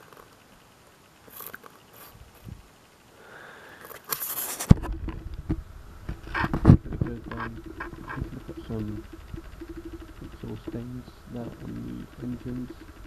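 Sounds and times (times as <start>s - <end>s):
handling rustle: 3.8s - 13.0s
small clicks and bumps: 3.8s - 13.0s.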